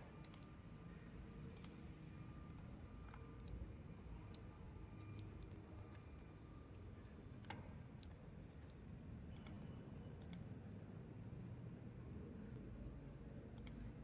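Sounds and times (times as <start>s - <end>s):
low room hum: 0.0s - 14.0s
computer mouse clicks: 0.2s - 0.5s, 1.5s - 1.8s, 3.1s - 3.7s, 4.3s - 6.1s, 7.4s - 10.5s, 13.5s - 14.0s.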